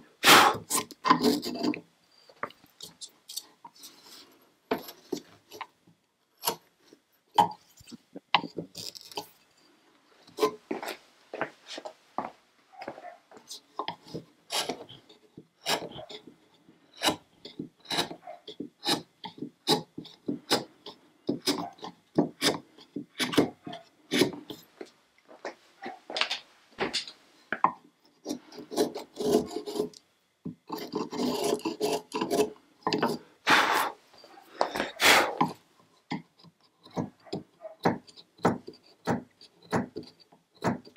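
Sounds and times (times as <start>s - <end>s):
chisel scraping wood: 0.4s - 1.9s, 6.4s - 9.5s, 10.2s - 10.8s, 13.4s - 24.9s, 28.0s - 40.9s.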